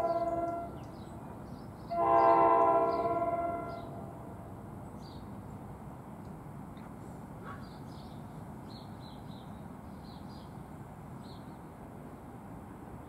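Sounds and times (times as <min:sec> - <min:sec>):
train horn blast: 0:00.0 - 0:01.1, 0:01.9 - 0:04.2.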